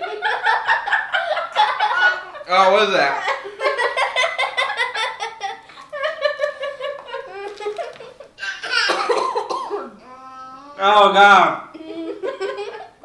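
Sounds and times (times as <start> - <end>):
people laughing: 0.0 - 8.3.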